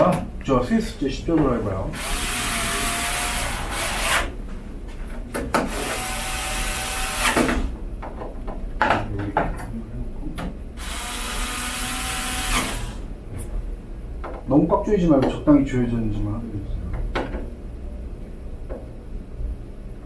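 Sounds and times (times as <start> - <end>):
electric screwdriver whine: 2.0 - 4.3, 5.7 - 7.6, 10.8 - 13.0.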